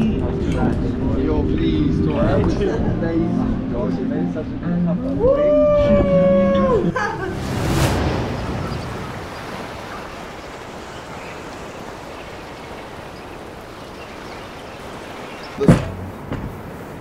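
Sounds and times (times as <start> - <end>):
wind: 0.0 - 17.0
sea surf: 5.8 - 17.0.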